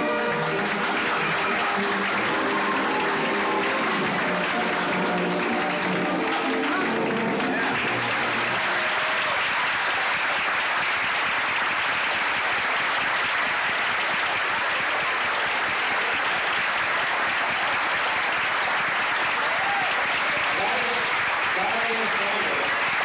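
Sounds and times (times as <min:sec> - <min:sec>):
waltz music: 0:00.0 - 0:08.9
audience applauding: 0:00.0 - 0:23.0.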